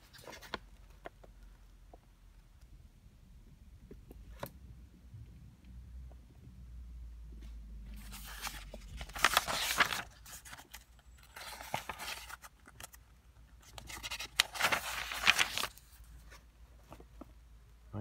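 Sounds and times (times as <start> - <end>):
paper pages rustling: 0.0 - 1.4, 7.9 - 13.0, 13.6 - 17.3.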